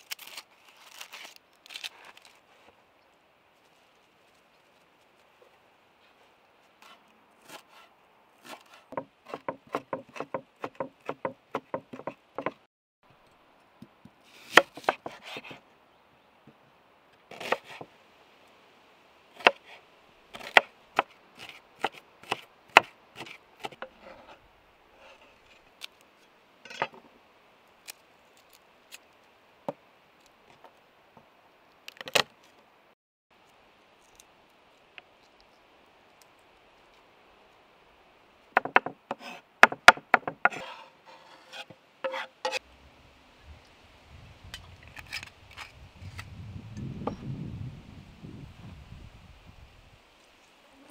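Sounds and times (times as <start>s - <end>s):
knife chopping on wooden board: 8.4s - 12.6s, 38.6s - 40.8s.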